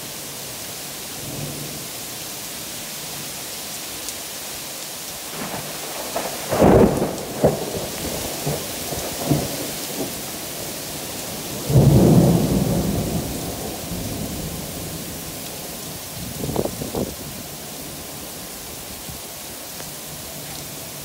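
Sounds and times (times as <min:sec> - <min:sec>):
heavy rain falling: 0:00.0 - 0:21.0
thunder rumble: 0:05.4 - 0:17.5.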